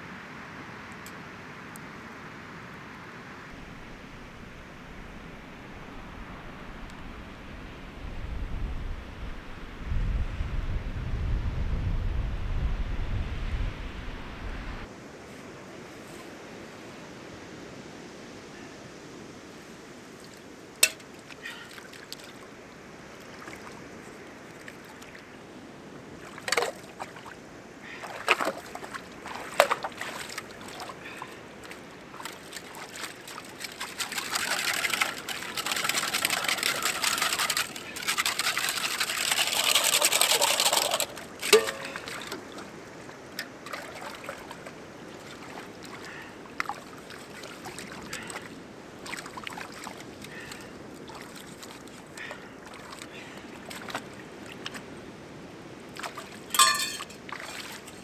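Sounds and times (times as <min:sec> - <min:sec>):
short splashes: 0:26.2 - 0:42.7
water pouring into rock pool: 0:32.2 - 0:42.7, 0:56.5 - 0:58.0.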